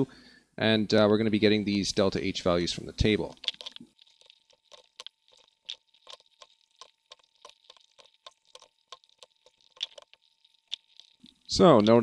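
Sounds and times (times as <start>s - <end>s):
stylus tapping on graphics tablet: 3.2s - 12.0s.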